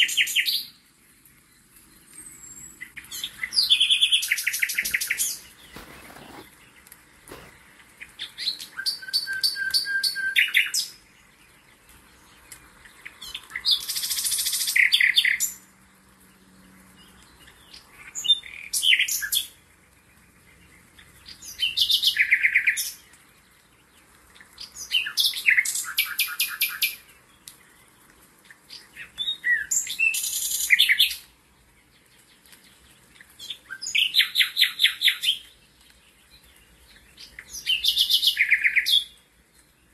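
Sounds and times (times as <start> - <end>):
songbird singing: 0.0 - 39.9.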